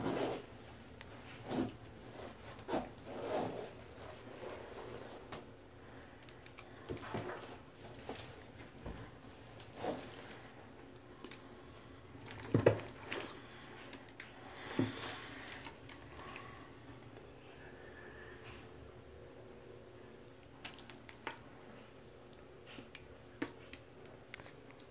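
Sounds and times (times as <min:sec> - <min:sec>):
slime squishes and rustles: 0:00.0 - 0:17.3.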